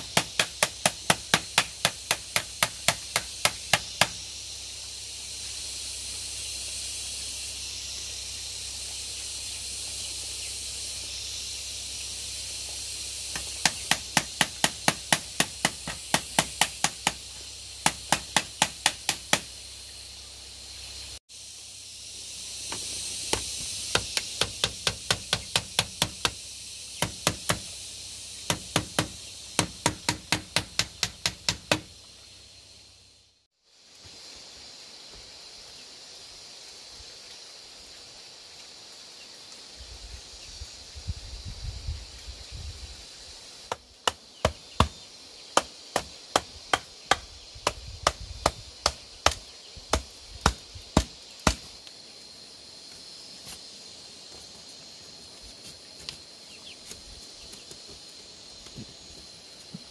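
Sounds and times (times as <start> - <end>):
hand tool striking bamboo: 0.0 - 4.2, 13.3 - 19.5, 22.7 - 26.4, 27.0 - 27.7, 28.4 - 31.9, 45.6 - 51.8
steady high hiss: 0.0 - 59.9.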